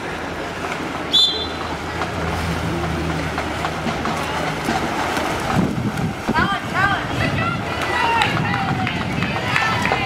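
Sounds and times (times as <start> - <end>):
low hum: 0.0 - 7.7.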